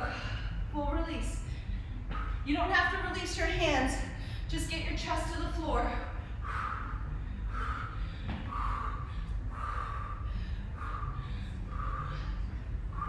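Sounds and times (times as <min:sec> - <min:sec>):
woman breathing hard: 0:00.0 - 0:02.5, 0:04.0 - 0:04.6, 0:05.8 - 0:13.0
steady low hum: 0:00.0 - 0:13.0.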